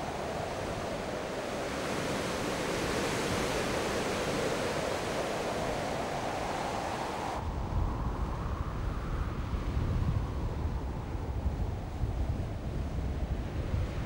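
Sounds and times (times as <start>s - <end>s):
wind rumble on microphone: 0.0s - 14.0s
wind rushing through pine trees: 0.0s - 14.0s.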